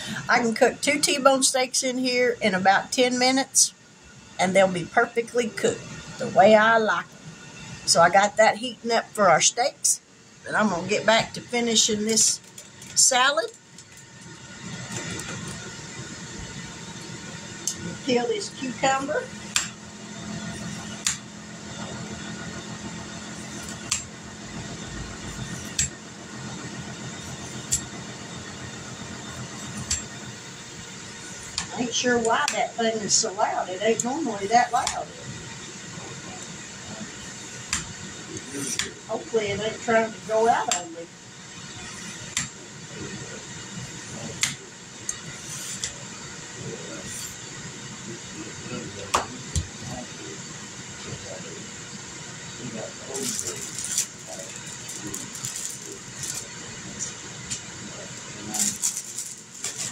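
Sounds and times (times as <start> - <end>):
grill fan humming loudly: 0.0 - 59.9.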